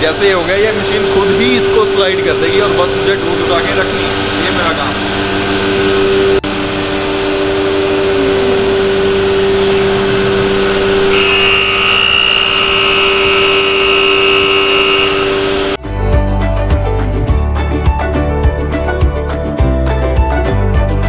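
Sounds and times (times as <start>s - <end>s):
cnc router mechanical hum: 0.0s - 15.8s
high machine whine: 0.0s - 15.8s.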